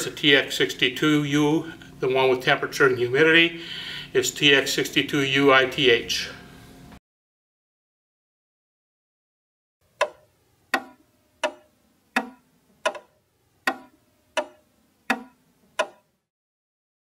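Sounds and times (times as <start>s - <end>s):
clock ticking: 10.0s - 16.1s.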